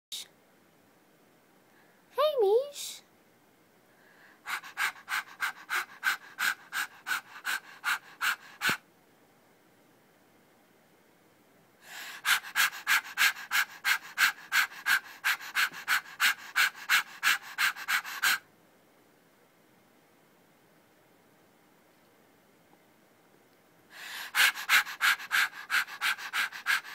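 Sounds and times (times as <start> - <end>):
person panting like a dog: 4.2 - 8.8, 11.8 - 18.5, 23.9 - 26.9.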